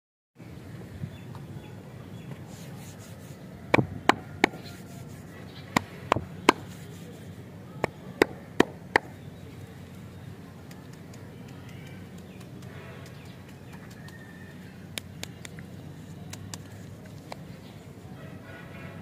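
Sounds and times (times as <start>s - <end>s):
hand clicking over lollipops: 10.6s - 14.2s, 14.9s - 15.7s, 16.3s - 17.5s.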